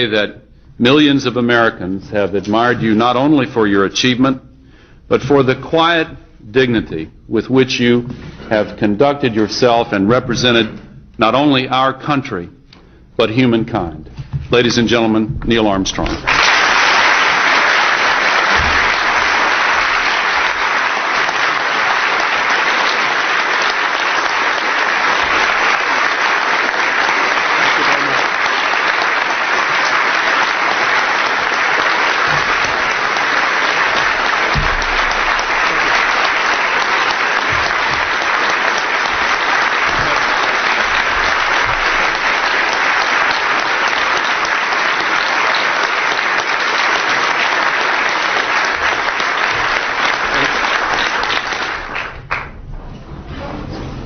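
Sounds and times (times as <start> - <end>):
large audience applauding: 16.2 - 52.6.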